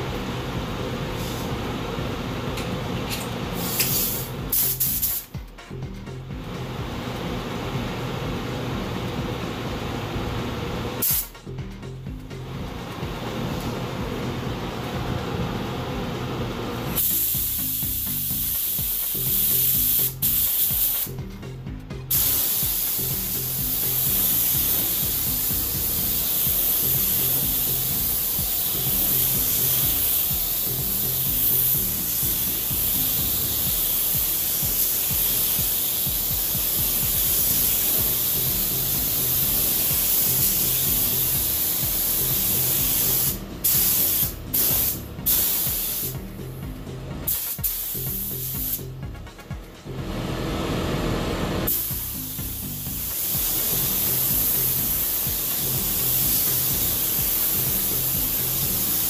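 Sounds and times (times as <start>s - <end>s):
paint spray gun hissing: 3.6s - 5.3s, 11.0s - 11.4s, 17.0s - 21.1s, 22.1s - 46.2s, 47.3s - 48.8s, 51.7s - 59.0s.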